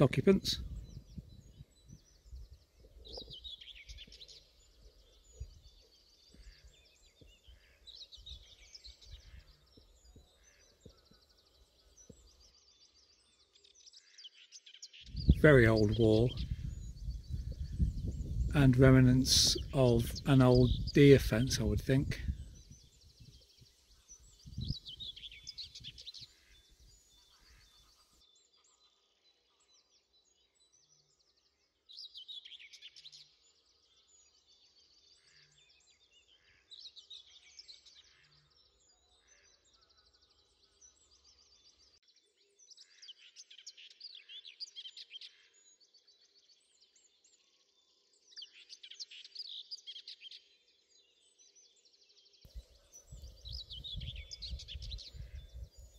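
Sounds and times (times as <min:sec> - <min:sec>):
faint songbird song: 0:00.0 - 0:55.9.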